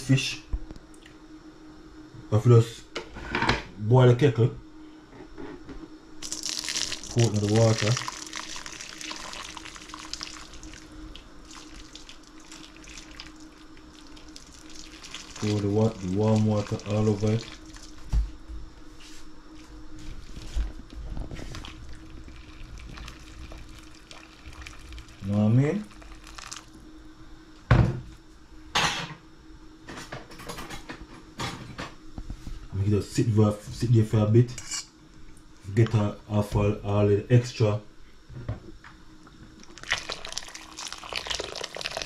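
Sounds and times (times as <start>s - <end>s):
water pouring into metal bowl: 6.2s - 17.9s, 21.9s - 26.7s, 39.8s - 42.0s
water dripping: 6.2s - 18.0s
solid thud: 27.7s - 28.1s.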